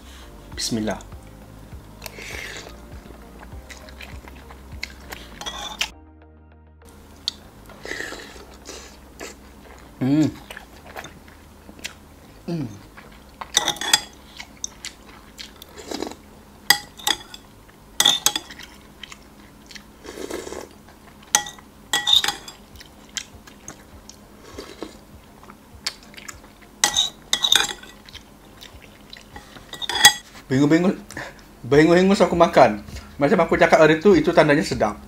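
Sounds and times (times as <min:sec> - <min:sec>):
chewing: 0:02.0 - 0:05.9, 0:07.2 - 0:30.4
cutlery clinking on glass bowl: 0:05.4 - 0:05.9, 0:13.6 - 0:14.2, 0:16.7 - 0:17.4, 0:18.0 - 0:18.6, 0:21.3 - 0:22.6, 0:26.8 - 0:28.0, 0:29.4 - 0:30.2
slurping noodles: 0:15.7 - 0:16.2, 0:20.0 - 0:20.8.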